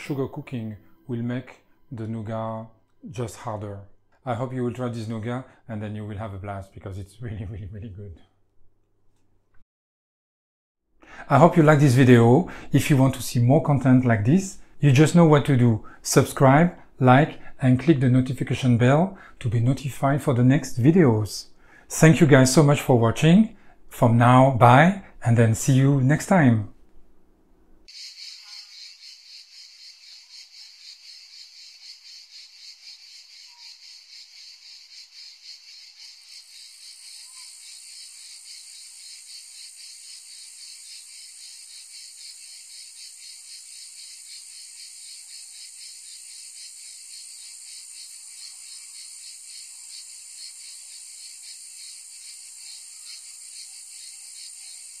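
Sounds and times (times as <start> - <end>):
cicadas chirring: 27.9 - 55.0
higher cicada song: 27.9 - 55.0.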